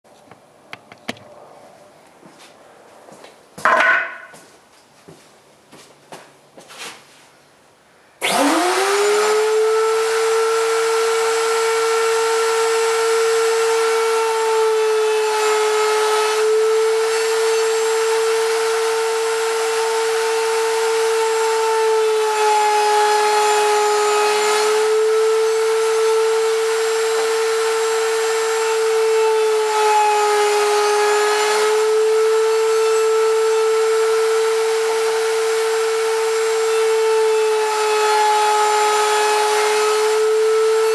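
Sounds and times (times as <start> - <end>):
wood router whining: 8.2 - 40.9.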